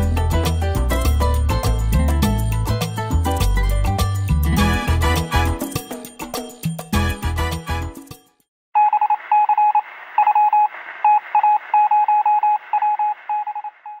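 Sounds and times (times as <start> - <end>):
background music: 0.0 - 8.4
morse code beeps: 8.8 - 14.0.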